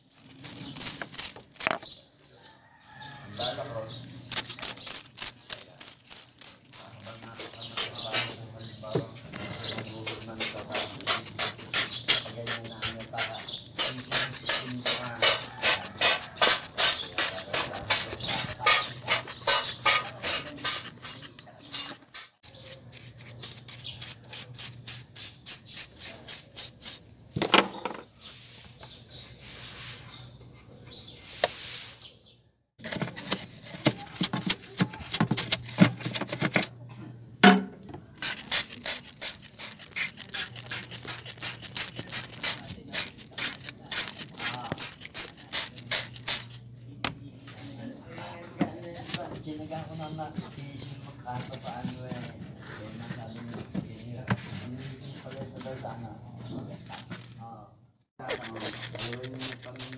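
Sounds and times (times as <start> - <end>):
spray bottle squirting water: 4.3 - 8.3, 38.2 - 46.6, 58.2 - 59.9.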